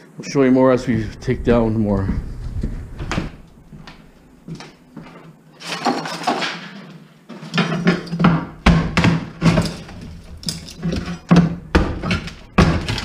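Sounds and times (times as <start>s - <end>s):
broken tile pieces clinking: 9.4s - 11.3s.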